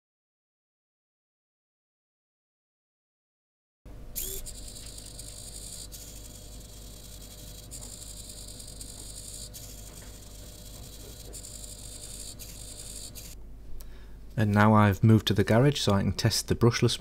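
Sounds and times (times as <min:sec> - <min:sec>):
servo motor whirring: 0:04.2 - 0:13.4.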